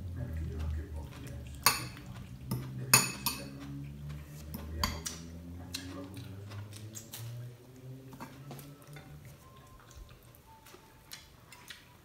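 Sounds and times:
fork clinking in a glass bowl: 1.6 - 3.6, 4.5 - 5.2.

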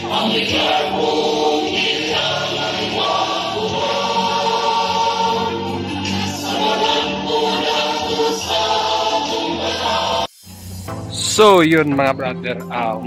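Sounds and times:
choir singing a song: 0.0 - 10.3.

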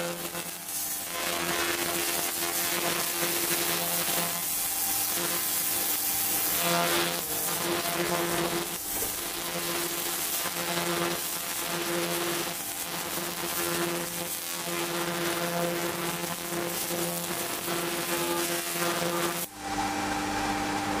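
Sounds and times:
laser cleaner buzzing and crackling: 0.0 - 19.5
steady machine hum: 0.0 - 21.0.

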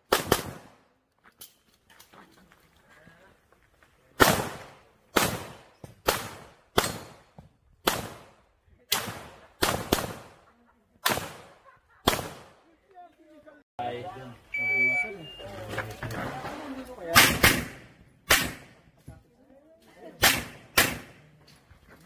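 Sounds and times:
handgun shots with echo: 17.2 - 18.8.

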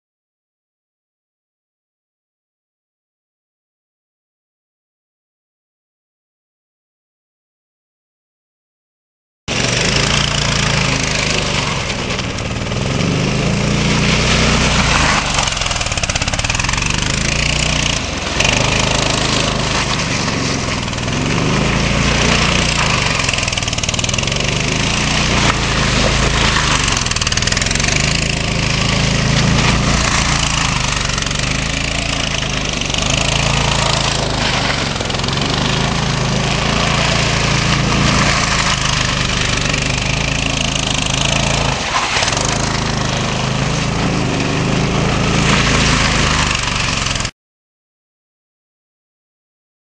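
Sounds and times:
go-kart engine revving: 9.5 - 47.3.

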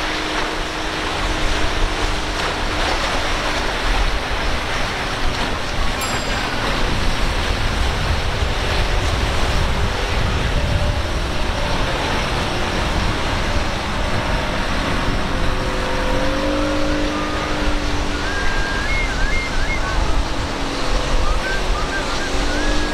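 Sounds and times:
outboard motor running: 0.0 - 22.9
surf rushing: 0.0 - 22.9
wind on microphone: 0.0 - 22.9.

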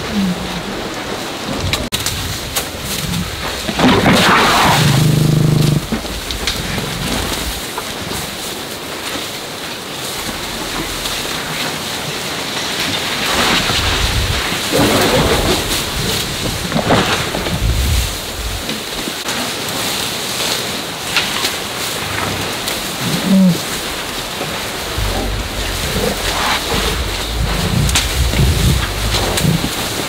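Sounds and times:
loud animal call: 4.2 - 6.1, 23.0 - 29.9
wind buffeting microphone: 22.8 - 30.0.

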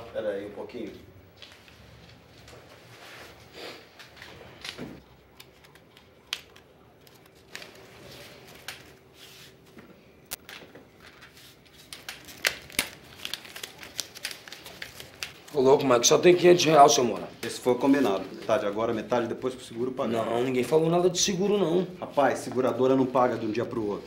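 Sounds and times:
paper rustling: 4.0 - 16.7.

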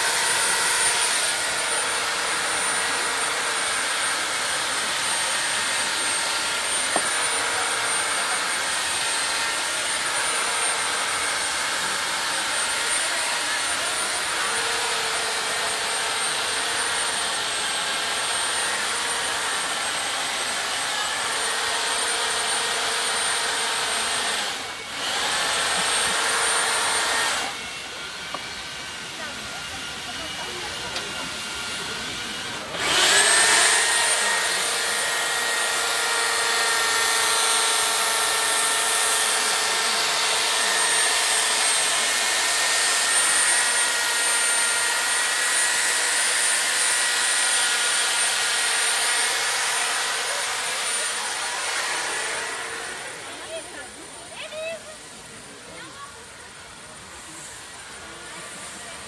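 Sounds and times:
electric chainsaw cutting ice: 0.0 - 59.0.

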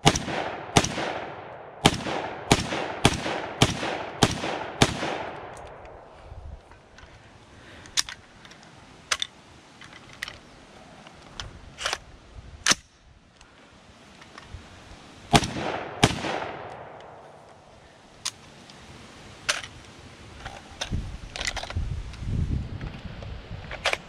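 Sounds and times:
rifle shots with echo: 0.0 - 6.1, 15.3 - 17.4.

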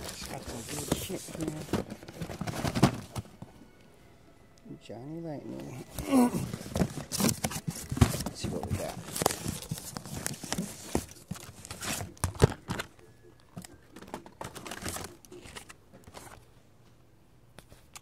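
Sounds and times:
phone being handled rustling: 5.8 - 16.5.

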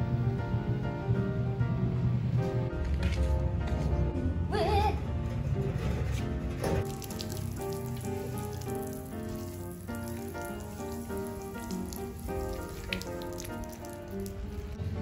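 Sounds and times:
background music with melody: 0.0 - 15.0
water spraying onto metal cage: 6.6 - 15.0.

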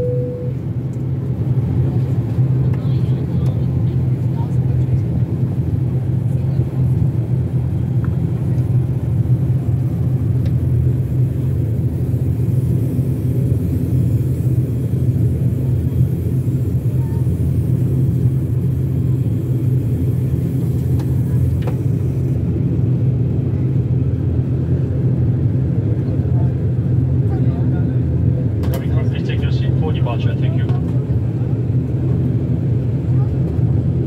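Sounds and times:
turboprop engines droning: 0.0 - 34.0.

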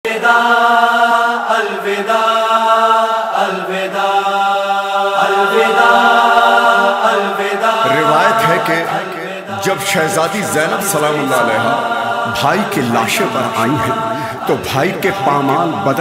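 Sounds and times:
voices chanting held notes: 0.1 - 16.0.

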